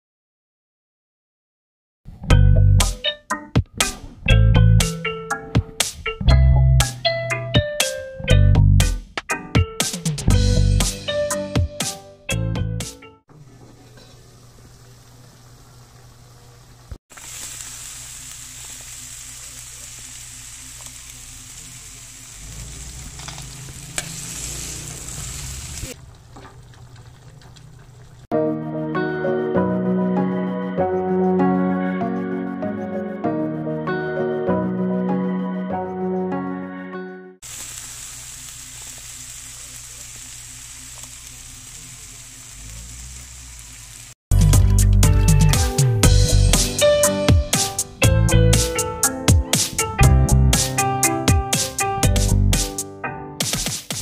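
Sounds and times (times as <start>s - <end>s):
background music: 2.3s - 13.2s, 28.3s - 37.4s, 44.3s - 54.0s
food sizzling in a pan: 13.4s - 26.0s, 37.4s - 44.2s.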